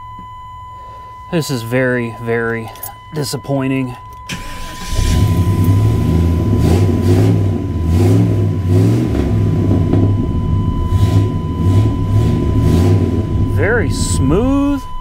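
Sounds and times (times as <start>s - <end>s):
car engine idling: 4.2s - 15.0s.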